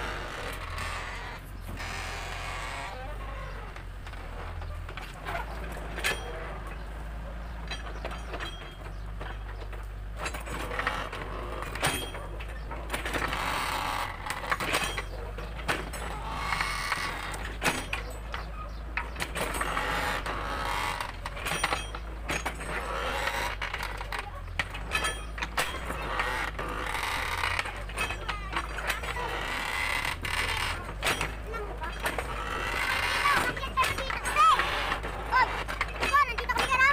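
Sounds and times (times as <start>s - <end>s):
mini excavator running: 0.0s - 36.9s
bucket knocking and creaking: 7.8s - 36.9s.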